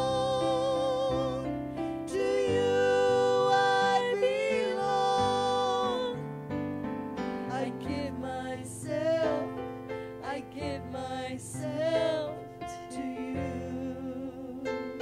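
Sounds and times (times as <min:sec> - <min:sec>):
woman singing with vibrato: 0:00.0 - 0:06.2, 0:07.5 - 0:09.6, 0:10.2 - 0:15.0.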